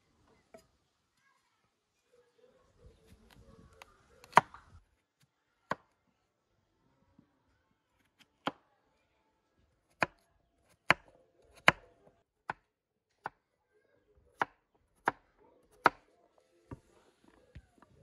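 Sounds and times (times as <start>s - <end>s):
knife chopping on wooden board: 10.8s - 11.9s.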